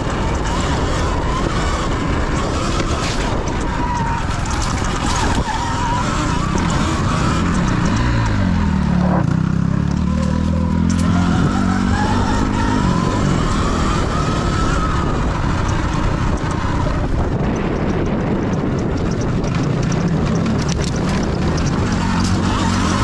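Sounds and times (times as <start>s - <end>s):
electric motor whine: 0.0s - 17.6s
low engine hum: 0.0s - 23.0s
wind on microphone: 0.0s - 23.0s.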